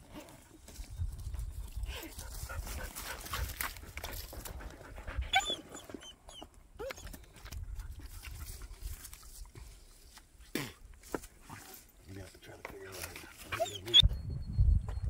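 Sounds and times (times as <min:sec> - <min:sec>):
dog panting: 0:02.1 - 0:06.0, 0:13.2 - 0:14.0.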